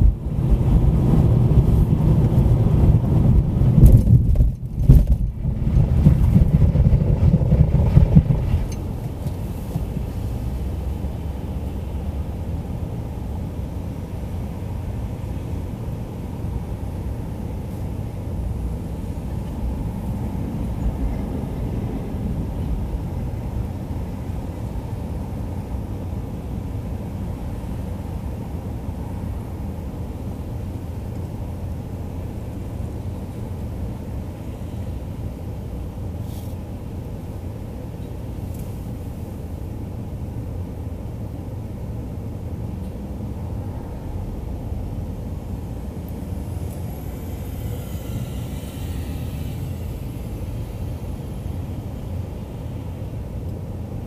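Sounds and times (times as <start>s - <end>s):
car engine and tyre rumble: 0.0s - 54.0s
faint high whine: 43.3s - 54.0s.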